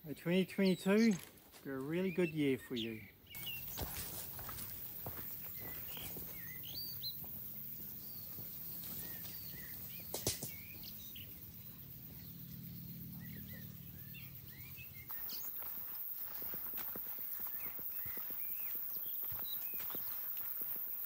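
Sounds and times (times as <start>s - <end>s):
small birds chirping: 0.0s - 21.0s
steady low hum: 3.4s - 18.1s.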